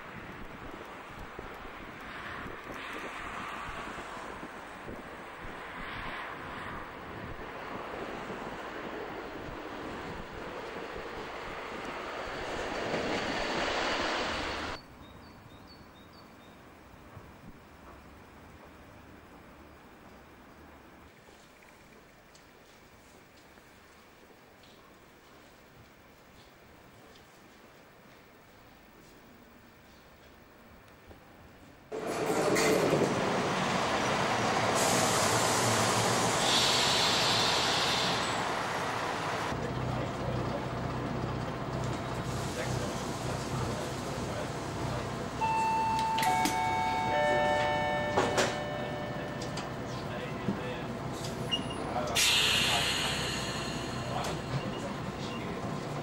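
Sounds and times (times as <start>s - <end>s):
railbus rolling: 0.0s - 56.0s
train rushing past: 3.0s - 14.8s, 31.9s - 56.0s
brake hiss: 34.4s - 39.6s, 42.0s - 45.1s, 51.1s - 55.4s
diesel engine idling: 34.9s - 45.7s.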